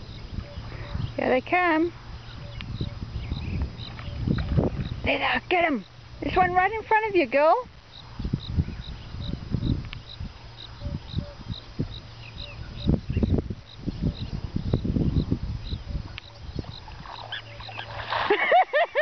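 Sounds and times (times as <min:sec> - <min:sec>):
high insect chirp: 0:00.0 - 0:19.0
steady low hum: 0:00.0 - 0:19.0.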